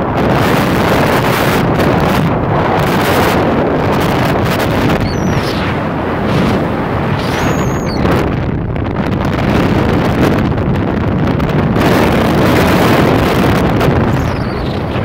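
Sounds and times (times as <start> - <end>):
dune buggy engine and tyres: 0.0 - 15.0
wind buffeting microphone: 0.0 - 15.0
short high squeal: 4.9 - 6.5, 7.1 - 8.1, 14.1 - 15.0.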